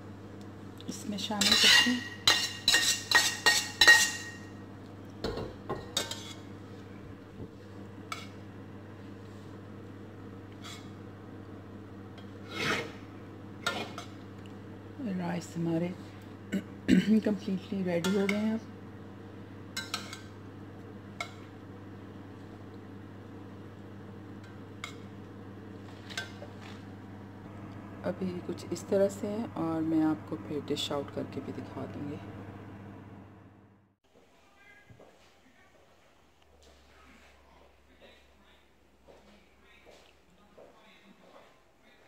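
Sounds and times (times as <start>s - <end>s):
low steady hum: 0.0s - 42.0s
rice being stirred: 1.3s - 4.4s, 12.1s - 14.6s
metal spatula scraping frying pan: 1.4s - 4.4s, 12.2s - 13.0s, 13.6s - 14.1s.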